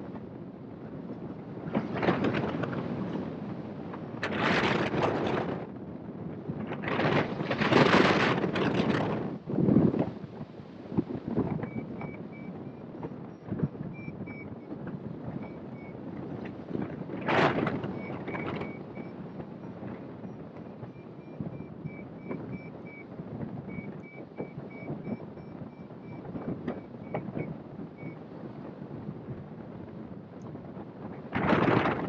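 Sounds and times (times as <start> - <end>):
wind rushing over microphone: 0.0 - 32.0
short electronic beeps: 11.6 - 12.8, 13.9 - 14.6, 17.9 - 19.2, 20.9 - 26.2, 26.8 - 28.2.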